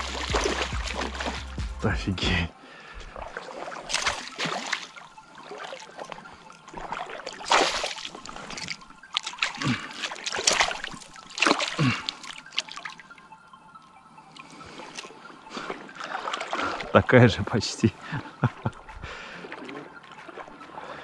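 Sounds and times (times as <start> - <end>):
fish thrashing and splashing: 0.0 - 1.6, 3.1 - 13.1, 14.9 - 16.9
water dripping and trickling: 0.0 - 21.0.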